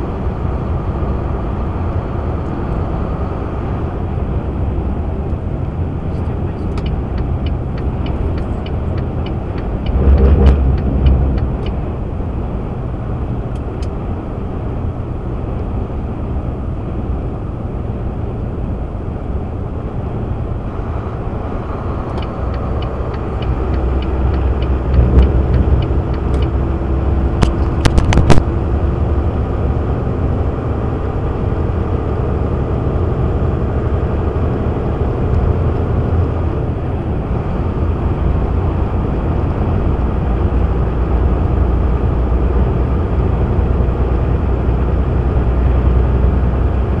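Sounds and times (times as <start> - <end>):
truck cab road rumble: 0.0 - 47.0
sharp clicks: 6.6 - 11.9.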